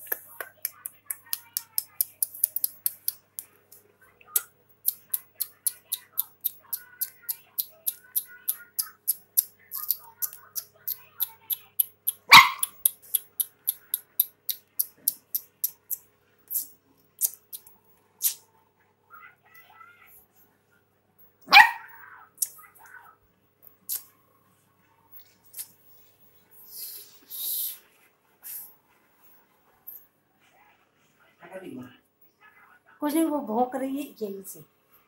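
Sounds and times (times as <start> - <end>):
fast even ticking clicks: 4.8 - 16.0
dog barking sharply: 12.3 - 12.8, 21.5 - 22.0.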